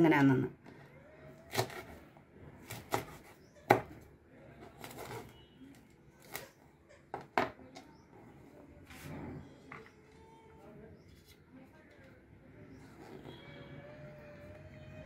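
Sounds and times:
knife chopping on plastic board: 2.6 - 4.1.

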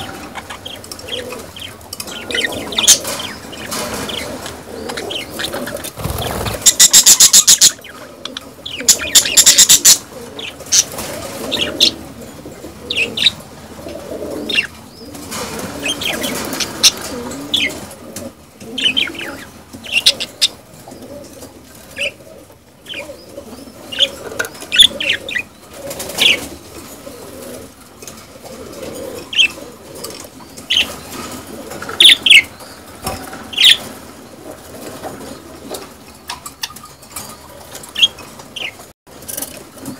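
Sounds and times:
budgerigars chattering and chirping: 0.0 - 12.0, 12.9 - 13.4, 18.8 - 20.6, 22.8 - 25.5, 29.2 - 31.2, 31.9 - 32.8, 33.5 - 33.9, 35.2 - 38.9.

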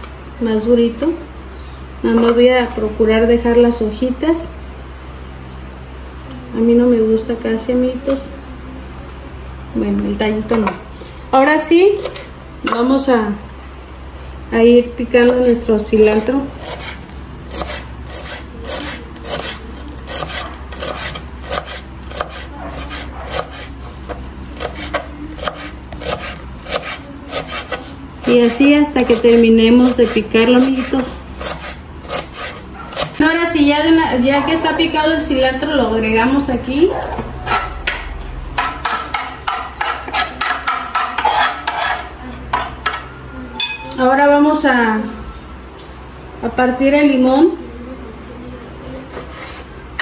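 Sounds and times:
knife chopping on wooden board: 16.6 - 28.5, 29.1 - 33.2, 37.5 - 42.0.

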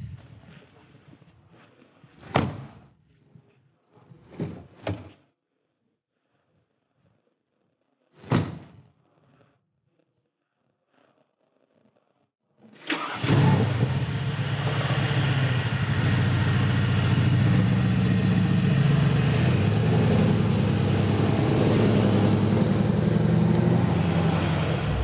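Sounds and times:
car engine starting with loud flare: 12.8 - 25.0
car engine idling: 13.9 - 25.0.

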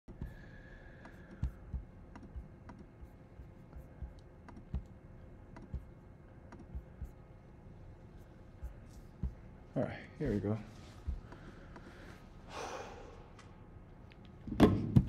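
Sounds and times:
mouse and keyboard clicking: 1.0 - 5.9, 6.5 - 7.1.

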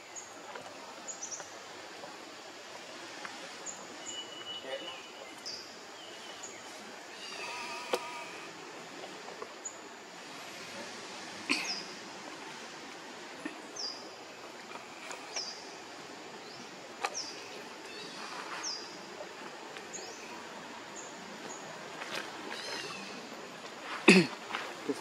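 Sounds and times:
steady outdoor hiss: 0.0 - 25.0.

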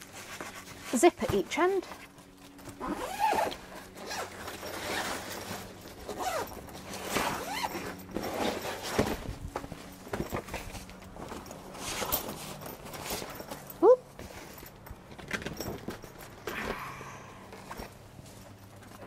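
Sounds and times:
zips being pulled: 2.8 - 9.3.

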